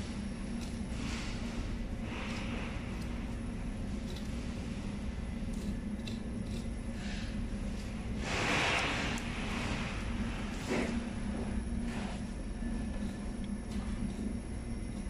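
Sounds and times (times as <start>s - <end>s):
low machinery hum: 0.0s - 15.0s
knife scraping through meat: 0.5s - 11.1s.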